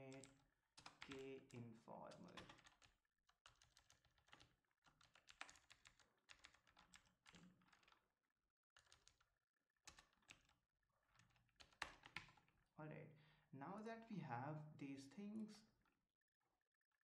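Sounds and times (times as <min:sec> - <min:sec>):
faint keyboard typing: 0:00.0 - 0:08.1, 0:08.8 - 0:12.7.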